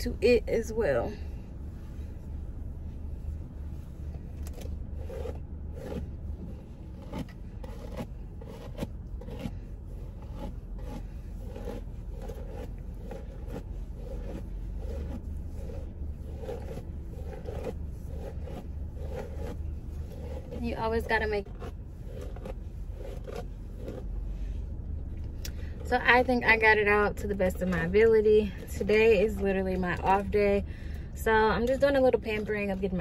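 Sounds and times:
hairbrush rasping through hair: 3.9s - 24.1s, 25.9s - 30.6s.

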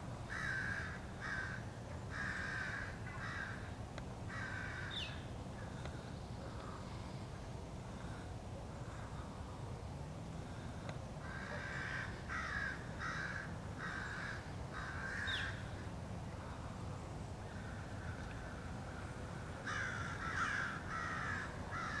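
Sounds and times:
crows cawing: 0.3s - 6.9s, 10.4s - 16.5s, 17.4s - 22.0s.

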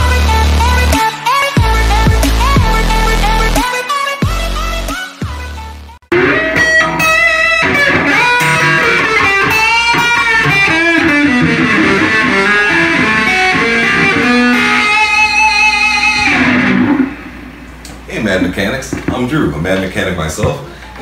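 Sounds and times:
electronic music: 0.0s - 17.8s
electric guitar lead line: 6.1s - 18.1s.

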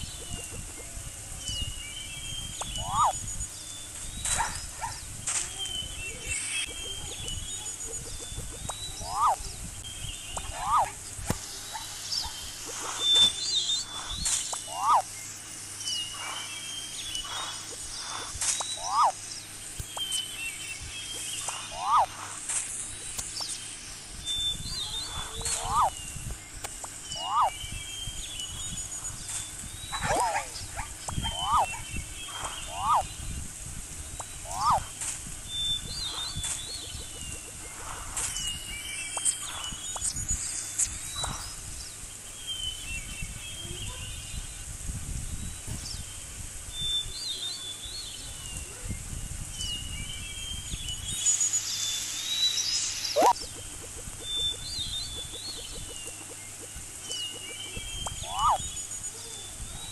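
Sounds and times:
bird whistles and chirps: 0.0s - 44.6s, 45.3s - 59.9s
animal call sweeping up and down: 2.6s - 3.2s, 9.0s - 9.6s, 10.3s - 15.2s, 16.0s - 19.2s, 21.2s - 22.7s, 24.7s - 26.0s, 27.0s - 27.6s, 29.9s - 33.3s, 34.3s - 35.1s, 51.6s - 53.5s, 58.0s - 58.8s.

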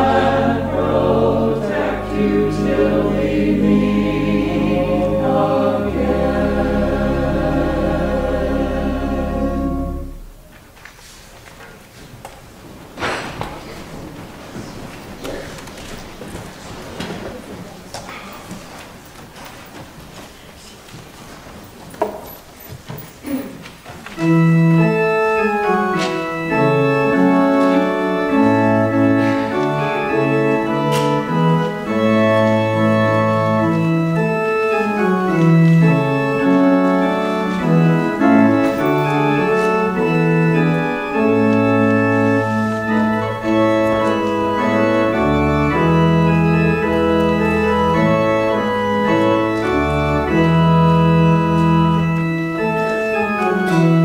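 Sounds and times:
pipe organ chords: 0.0s - 10.8s, 24.1s - 54.0s.

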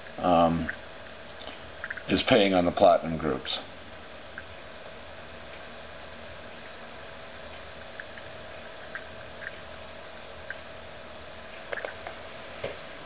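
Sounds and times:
liquid fizzing: 11.6s - 12.3s.

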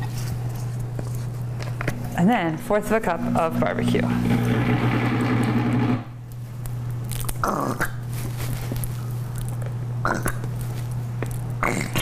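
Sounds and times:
steady low hum: 0.0s - 12.0s
kitchen appliance motor growling: 1.8s - 6.2s.

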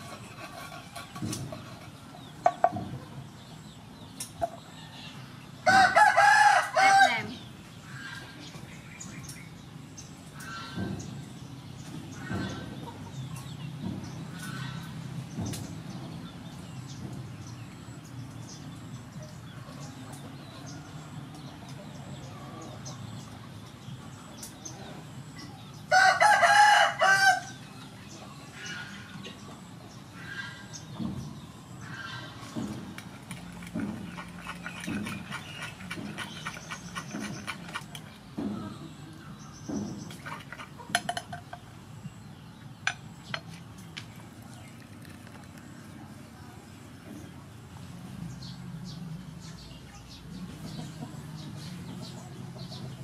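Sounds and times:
rooster crowing: 5.6s - 7.4s, 25.9s - 27.6s.

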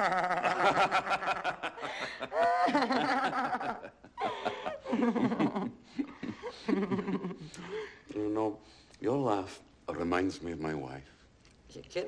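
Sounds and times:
woman laughing heartily: 0.0s - 7.8s.

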